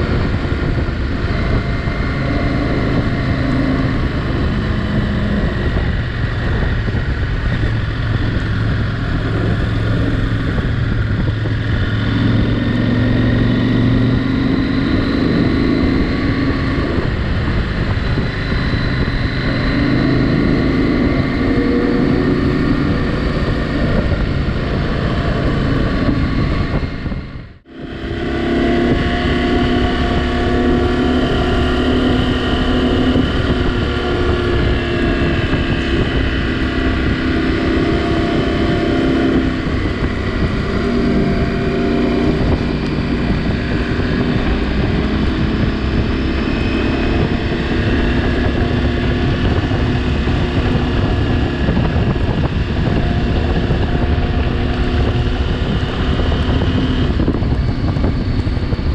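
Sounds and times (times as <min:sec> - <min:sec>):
motorcycle engine running: 0:00.0 - 0:58.9
wind noise on microphone: 0:00.0 - 0:58.9.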